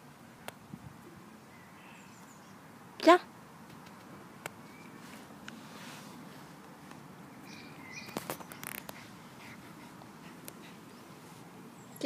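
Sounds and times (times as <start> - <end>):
faint bird chirps: 1.4 - 2.6, 4.6 - 5.1, 7.3 - 9.4
soft clicks and rustles: 3.6 - 7.1, 8.0 - 11.5.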